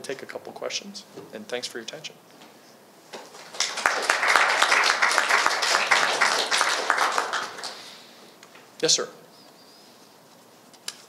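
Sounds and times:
audience applauding: 0:03.3 - 0:08.1.

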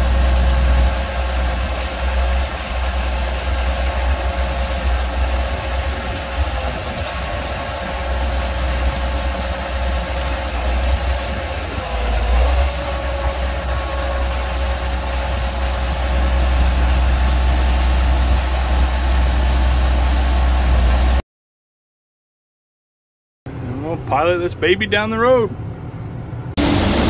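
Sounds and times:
tractor diesel engine whining: 0:00.0 - 0:21.2, 0:26.6 - 0:27.0.

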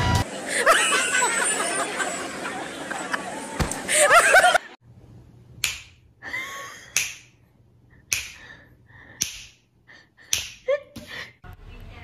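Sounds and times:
person snapping fingers: 0:05.6 - 0:05.9, 0:06.9 - 0:07.3, 0:08.1 - 0:08.5, 0:09.2 - 0:09.6, 0:10.3 - 0:10.6.

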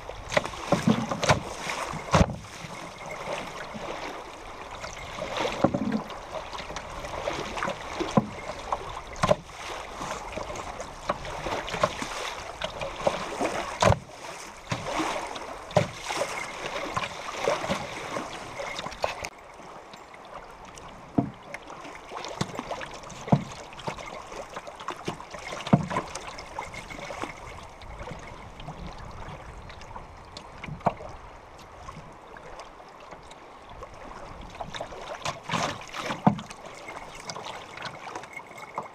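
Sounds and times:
river water rushing against canoe: 0:00.0 - 0:38.9
sharp splash or knock: 0:00.3 - 0:02.5, 0:13.0 - 0:14.0.

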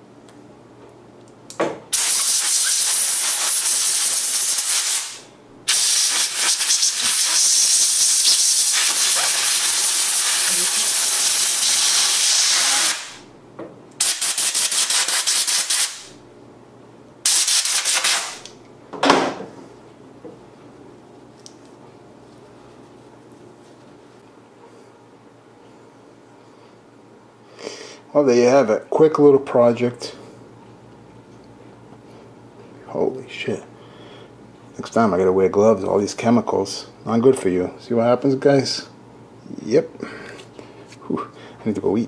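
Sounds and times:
compressed air blow gun hissing: 0:01.9 - 0:13.2.

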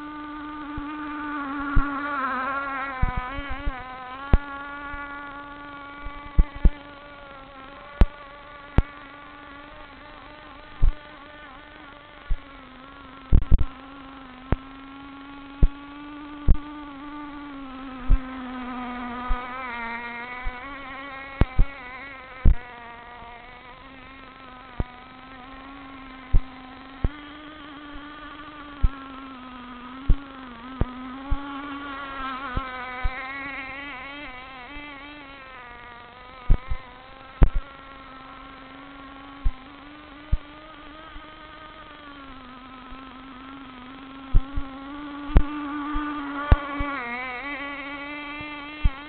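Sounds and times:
model boat engine buzzing: 0:00.0 - 0:49.0
sharp clicks: 0:15.6 - 0:15.8, 0:36.4 - 0:37.7.

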